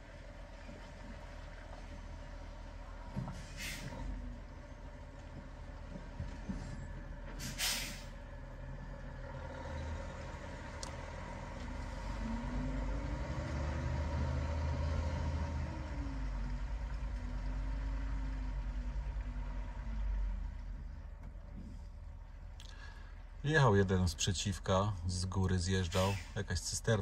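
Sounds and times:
diesel truck engine rumbling: 0:00.0 - 0:27.0
air brake hiss: 0:03.4 - 0:04.0, 0:07.4 - 0:08.2, 0:25.9 - 0:26.4.

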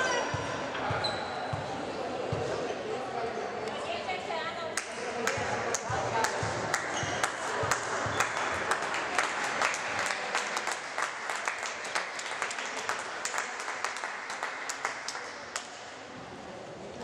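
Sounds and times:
crowd applauding: 0:05.2 - 0:15.8.

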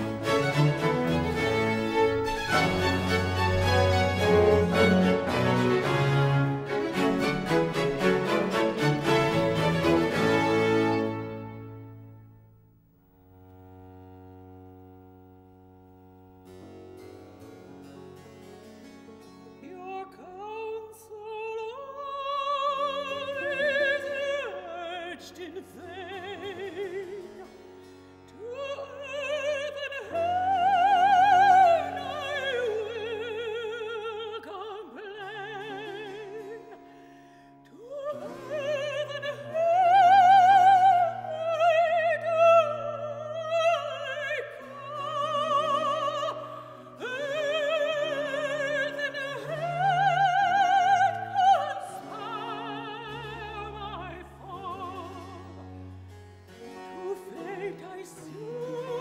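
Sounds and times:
woman singing opera: 0:19.6 - 0:27.5, 0:28.3 - 0:37.0, 0:37.6 - 0:55.6, 0:56.7 - 0:59.0.

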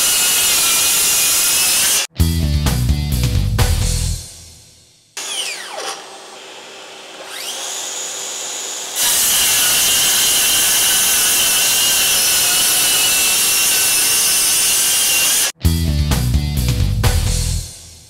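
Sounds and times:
circular saw cutting wood panels: 0:00.0 - 0:02.1, 0:05.2 - 0:15.6
circular saw motor whine: 0:05.2 - 0:15.5.

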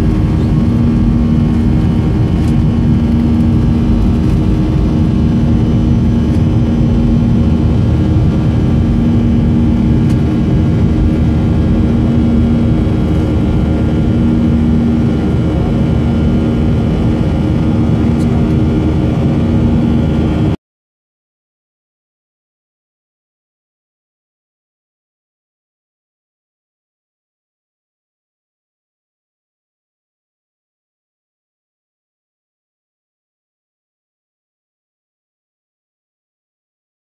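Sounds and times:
jet cabin engine drone: 0:00.0 - 0:20.6
low hum: 0:00.0 - 0:20.6.

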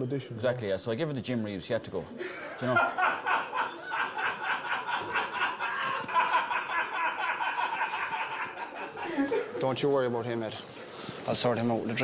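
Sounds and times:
men laughing: 0:02.2 - 0:09.7.

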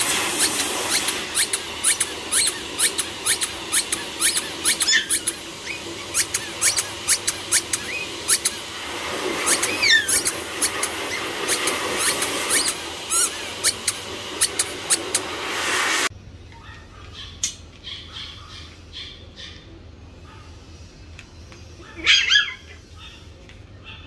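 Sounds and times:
puppies squeaking: 0:00.3 - 0:08.7, 0:09.4 - 0:15.2
puppy yelping: 0:00.4 - 0:08.6, 0:09.4 - 0:15.2, 0:16.6 - 0:20.4, 0:21.8 - 0:23.2.

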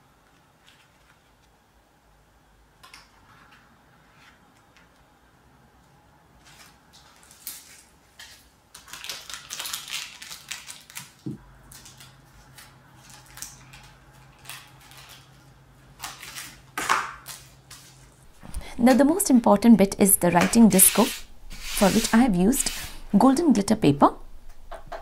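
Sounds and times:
packing tape crinkling: 0:06.4 - 0:18.7
paper and cardboard rustling: 0:20.4 - 0:23.0.

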